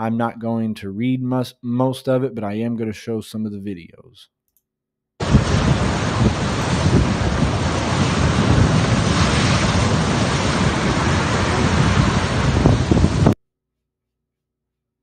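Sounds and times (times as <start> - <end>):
storm wind buffeting microphone: 5.2 - 13.4.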